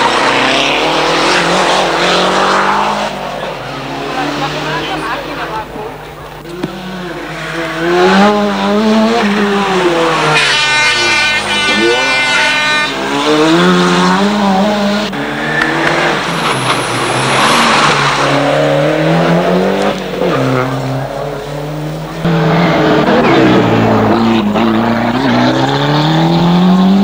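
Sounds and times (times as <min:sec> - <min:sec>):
rally car engines accelerating: 0:00.0 - 0:27.0.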